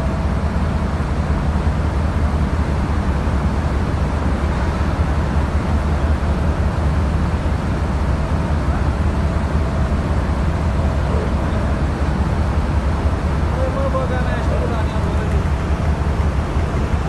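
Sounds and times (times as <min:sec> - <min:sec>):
heavy machinery rumbling: 0:00.0 - 0:17.0.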